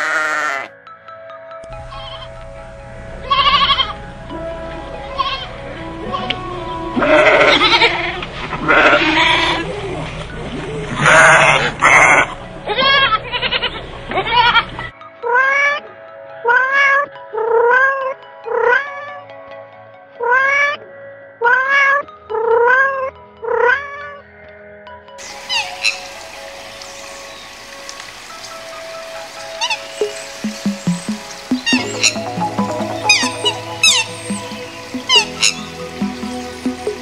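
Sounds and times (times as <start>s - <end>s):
sheep bleating: 0.0s - 0.7s, 3.2s - 4.0s, 5.0s - 9.7s, 11.0s - 14.7s.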